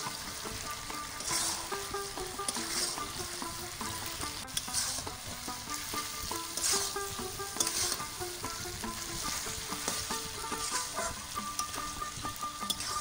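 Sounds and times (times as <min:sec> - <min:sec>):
fish sizzling: 0:00.0 - 0:13.0
soft plucked background melody: 0:00.0 - 0:13.0
spatula scraping metal pan: 0:00.0 - 0:13.0.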